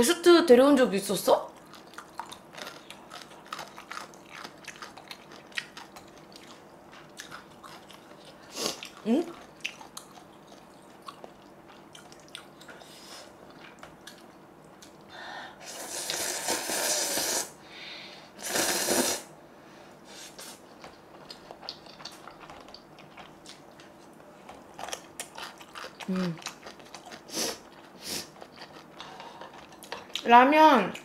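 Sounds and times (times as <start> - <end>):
person slurping noodles: 15.6 - 17.6, 18.4 - 19.3.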